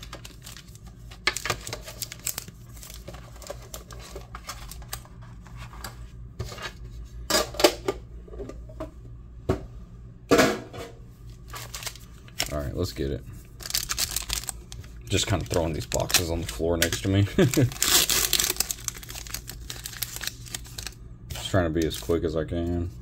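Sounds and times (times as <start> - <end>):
plastic wrap crinkling: 0.0 - 5.9, 11.4 - 22.2.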